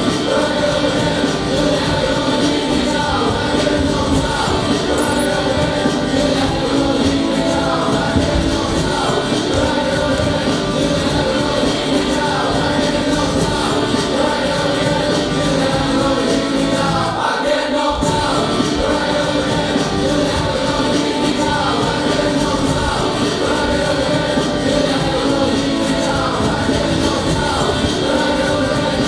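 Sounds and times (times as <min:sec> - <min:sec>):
group singing with accompaniment: 0:00.0 - 0:29.0.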